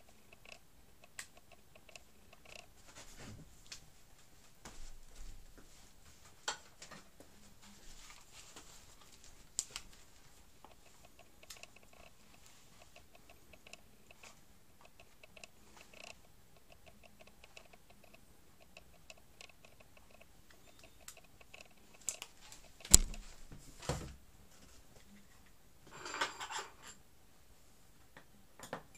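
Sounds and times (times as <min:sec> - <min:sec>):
small plastic part ticking: 0:00.0 - 0:02.7, 0:10.6 - 0:23.2.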